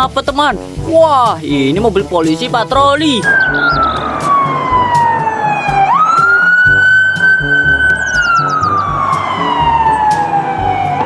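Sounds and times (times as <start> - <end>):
background music with beat: 0.0 - 11.0
police siren wailing: 3.2 - 11.0.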